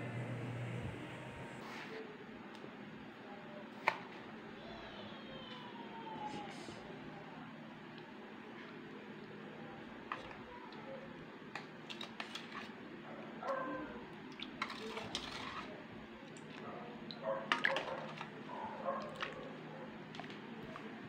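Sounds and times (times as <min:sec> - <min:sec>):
spoon stirring in metal bowl: 0:11.5 - 0:12.8, 0:14.4 - 0:15.8, 0:17.5 - 0:19.5.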